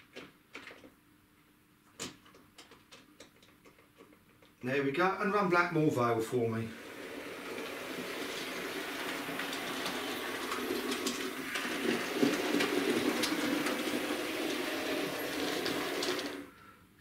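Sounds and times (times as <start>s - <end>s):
electric motor hum: 6.7s - 16.5s
wheels clicking on rails: 6.7s - 16.5s.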